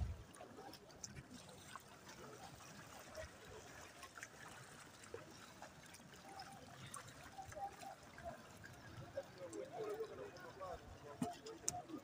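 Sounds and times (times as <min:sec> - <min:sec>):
floodwater trickling and sloshing: 0:00.0 - 0:12.0
small water splashes: 0:00.0 - 0:12.0.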